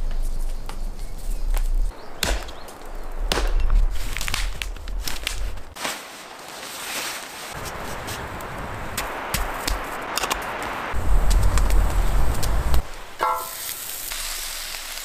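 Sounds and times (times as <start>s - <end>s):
hatchet chopping branch: 1.9s - 5.4s.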